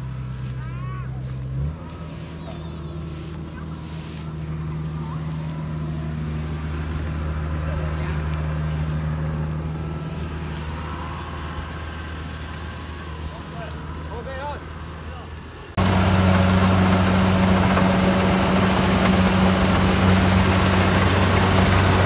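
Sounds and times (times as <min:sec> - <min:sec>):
combine harvester engine running: 0:00.0 - 0:22.0
stalks rustling: 0:00.0 - 0:22.0.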